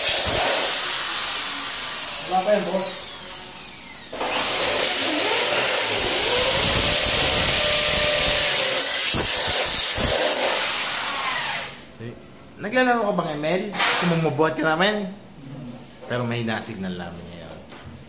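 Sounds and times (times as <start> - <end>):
electric drill drilling metal: 0.0 - 11.8.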